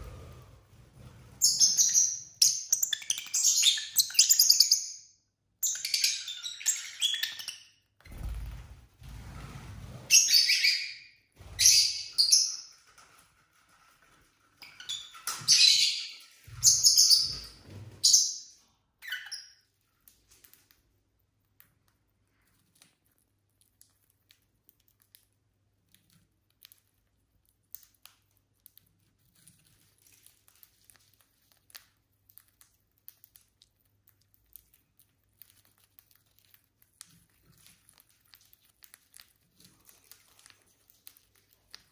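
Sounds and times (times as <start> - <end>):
lovebirds chirping: 1.4 - 8.3, 10.1 - 12.7, 14.6 - 19.6.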